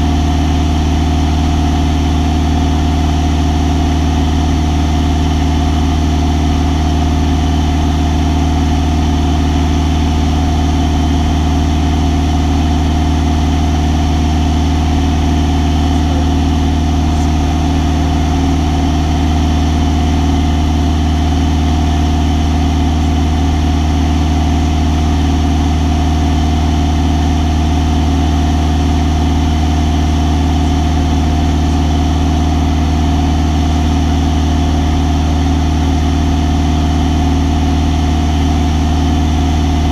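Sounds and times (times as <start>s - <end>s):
light aircraft engine drone: 13.8s - 22.1s.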